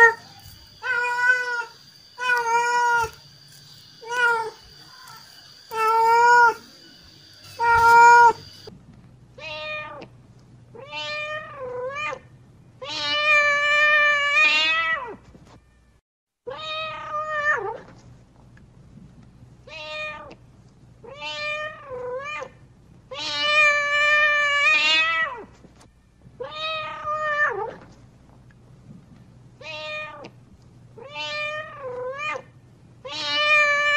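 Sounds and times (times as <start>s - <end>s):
cat meowing: 0.0s - 8.7s, 10.8s - 12.2s, 12.8s - 15.2s, 19.7s - 20.4s, 21.0s - 25.5s, 26.4s - 27.8s, 29.6s - 30.3s, 31.0s - 33.9s.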